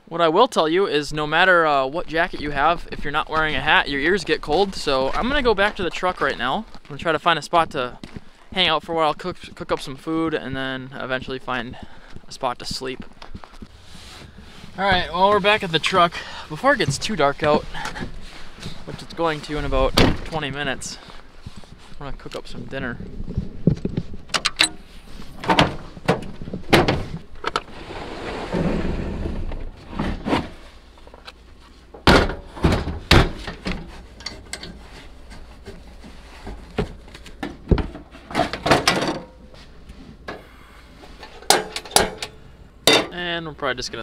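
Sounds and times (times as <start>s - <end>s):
scraping or sliding sound: 13.7s - 19.9s, 27.5s - 30.8s.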